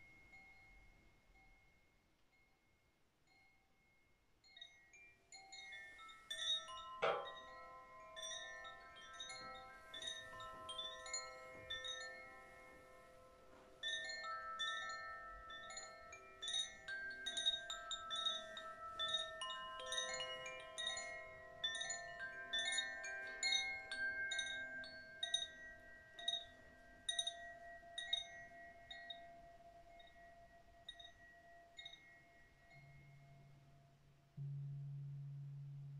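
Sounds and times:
wind chime ringing: 0:00.0 - 0:33.9.

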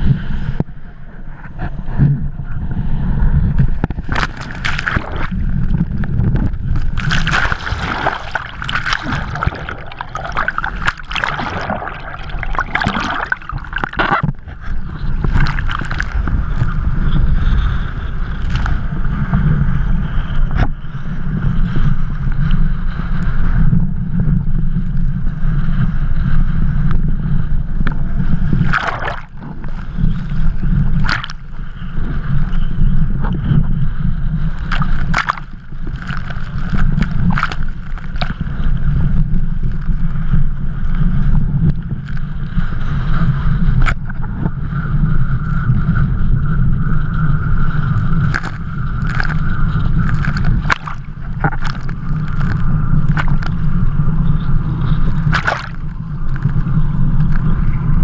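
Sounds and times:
wind buffeting microphone: 0:00.0 - 0:58.0
water sloshing and splashing: 0:03.6 - 0:16.9, 0:28.4 - 0:31.8, 0:34.5 - 0:38.8, 0:48.2 - 0:53.7, 0:54.9 - 0:56.6
sharp splashes hitting camera: 0:03.9 - 0:16.7, 0:28.5 - 0:31.5, 0:34.6 - 0:38.4, 0:48.2 - 0:53.6, 0:55.0 - 0:56.6.

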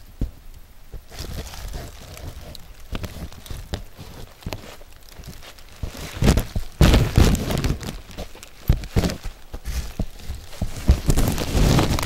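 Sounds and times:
footsteps on leaf litter: 0:01.0 - 0:12.0.

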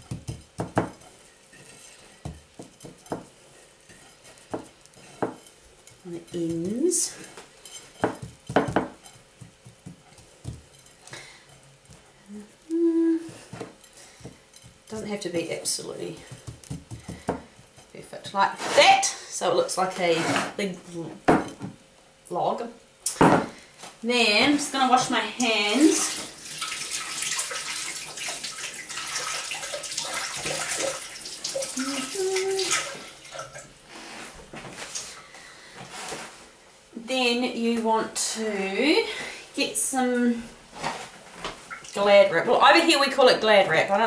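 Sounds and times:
low steady hum: 0:00.0 - 0:27.2
hands washing under water: 0:25.8 - 0:33.7.

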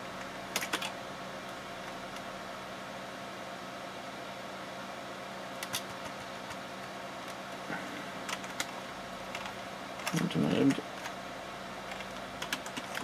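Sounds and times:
computers humming: 0:00.0 - 0:13.0
keyboard keystrokes: 0:00.5 - 0:00.9, 0:05.6 - 0:06.6, 0:08.3 - 0:11.1, 0:11.9 - 0:13.0.

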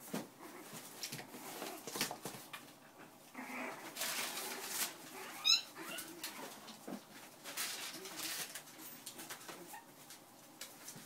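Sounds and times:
paws scratching on blankets: 0:00.0 - 0:11.0
puppies whimpering: 0:05.1 - 0:06.7
puppy high squeal: 0:05.2 - 0:06.1.

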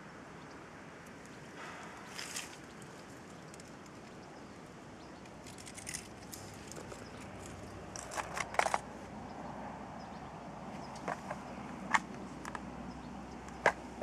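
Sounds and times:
gear rustling: 0:05.4 - 0:08.8
sharp clicks of gear: 0:07.9 - 0:08.9.

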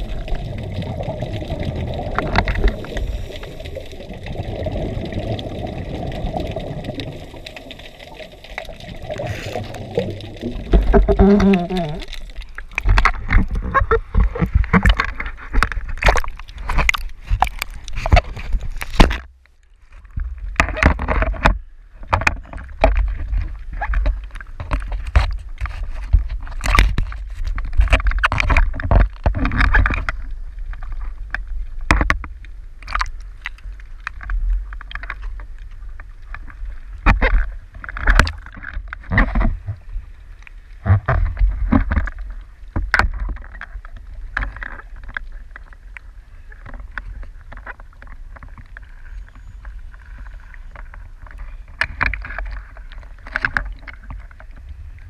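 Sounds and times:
small waves lapping and splashing: 0:00.0 - 0:19.2
low rumble of moving water: 0:00.0 - 0:55.0.

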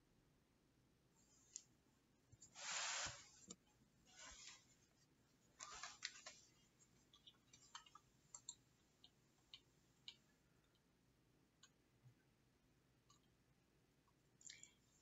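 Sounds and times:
faint rustles: 0:02.4 - 0:06.8
faint small clicks: 0:07.1 - 0:10.9, 0:14.1 - 0:14.8.

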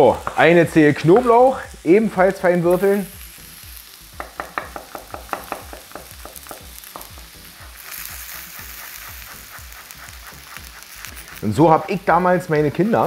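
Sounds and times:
food sizzling in a pan: 0:00.0 - 0:13.0
knife chopping on wooden board: 0:04.2 - 0:07.2.

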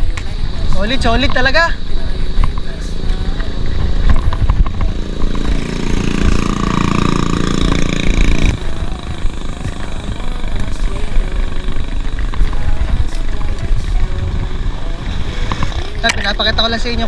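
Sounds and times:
wind rumble on microphone: 0:00.0 - 0:17.0
small engine running: 0:03.2 - 0:16.1.

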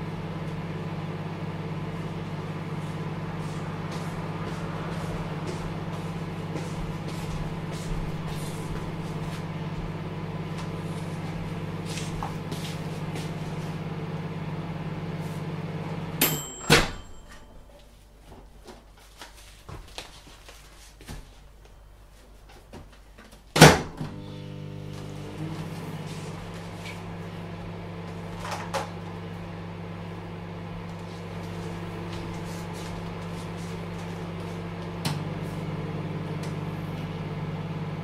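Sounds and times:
microwave oven humming: 0:00.0 - 0:19.1, 0:23.5 - 0:38.0
microwave timer bell ding: 0:16.2 - 0:17.8.

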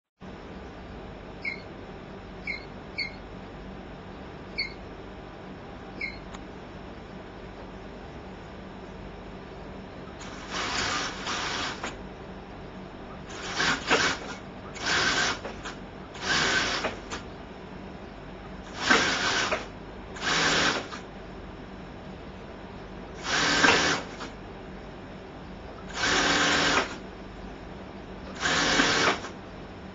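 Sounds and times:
industrial sewing machine stitching: 0:10.2 - 0:12.0, 0:13.3 - 0:17.2, 0:18.7 - 0:21.0, 0:23.2 - 0:24.4, 0:25.9 - 0:27.0, 0:28.3 - 0:29.4.

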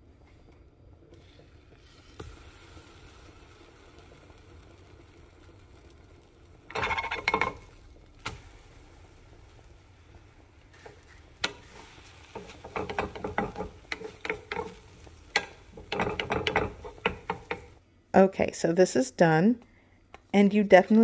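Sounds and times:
food sizzling in a pan: 0:01.2 - 0:17.8
wooden spatula scraping a pan: 0:06.7 - 0:07.8, 0:10.7 - 0:17.8
spatula tap: 0:11.4 - 0:17.7.

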